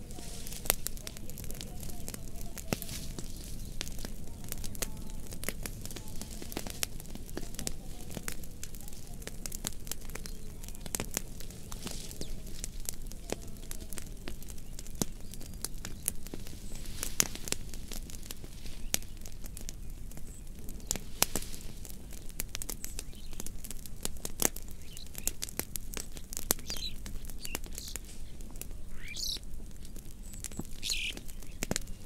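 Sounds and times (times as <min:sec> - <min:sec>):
fire crackling: 0:00.0 - 0:32.0
bird chirping: 0:24.8 - 0:25.4, 0:26.6 - 0:29.4, 0:30.2 - 0:32.0.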